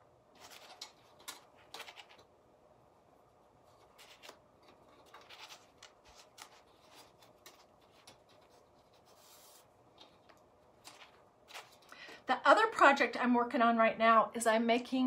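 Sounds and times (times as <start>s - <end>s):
twine rustling and scratching: 0.3s - 2.3s, 3.6s - 11.9s.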